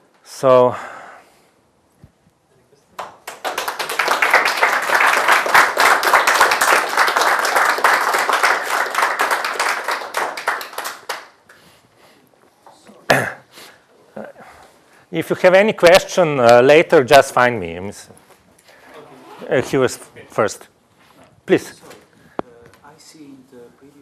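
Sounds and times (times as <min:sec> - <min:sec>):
audience applauding: 0:03.0 - 0:11.5.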